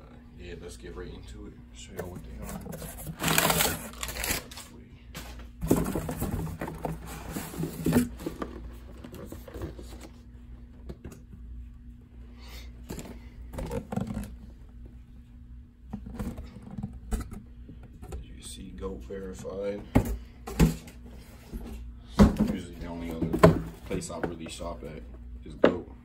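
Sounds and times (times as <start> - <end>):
cardboard scraping and rustling: 2.0 - 4.7, 5.6 - 10.2.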